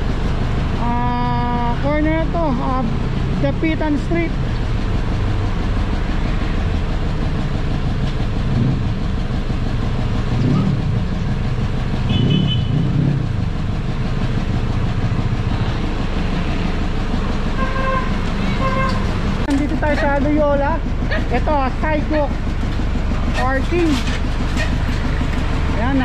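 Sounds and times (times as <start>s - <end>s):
car and motorcycle engines: 0.0s - 26.0s.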